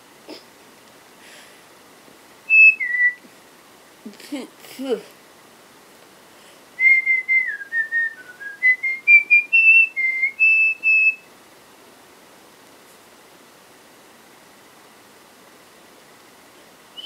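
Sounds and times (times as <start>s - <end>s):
woman whistling a tune: 2.5s - 3.2s, 6.8s - 11.2s.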